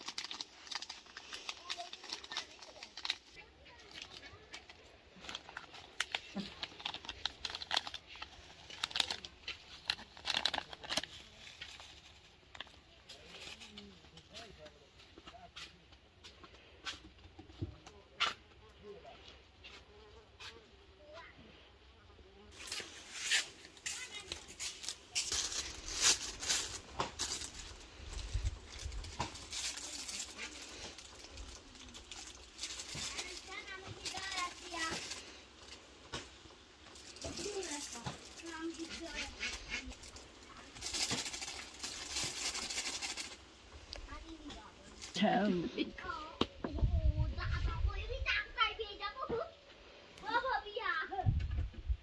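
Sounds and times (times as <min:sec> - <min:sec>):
crinkling clicks and crackles: 0:00.0 - 0:19.9, 0:22.5 - 0:45.3.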